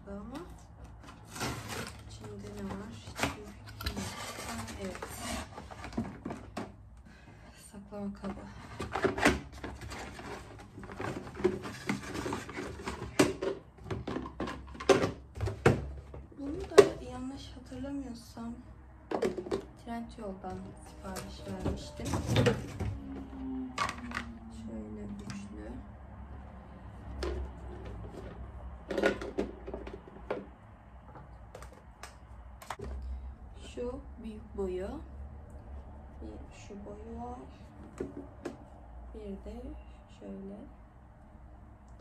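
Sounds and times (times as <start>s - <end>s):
plastic containers clattering: 0.3s - 6.8s, 8.2s - 17.8s, 19.0s - 19.8s, 20.5s - 24.4s, 27.0s - 33.0s
cardboard rustling: 0.9s - 6.5s.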